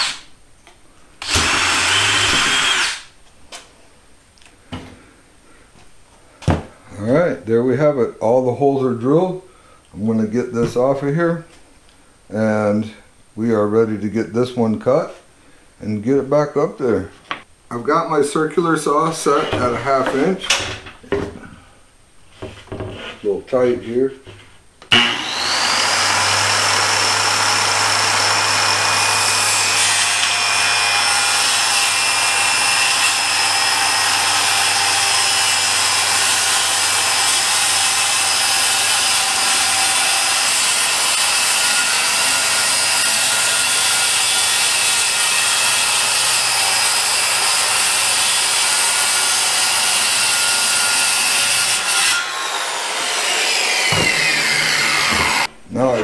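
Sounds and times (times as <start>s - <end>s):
circular saw cutting plywood: 1.2s - 3.1s, 24.9s - 56.0s.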